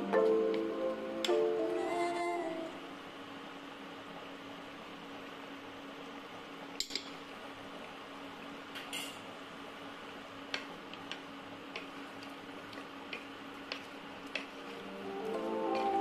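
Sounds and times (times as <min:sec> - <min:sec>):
music: 0:00.0 - 0:02.6, 0:14.6 - 0:16.0.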